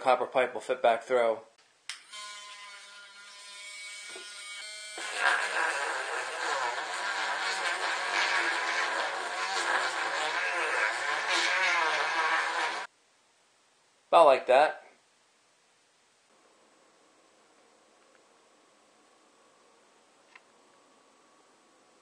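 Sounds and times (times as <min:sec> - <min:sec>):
rotary tool whining: 0:02.0 - 0:12.9
rotary tool sanding wood: 0:02.3 - 0:12.9.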